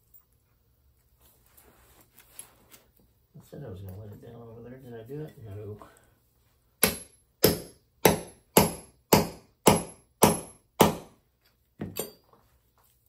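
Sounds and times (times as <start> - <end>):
hammer striking grommet tool: 6.8 - 11.2.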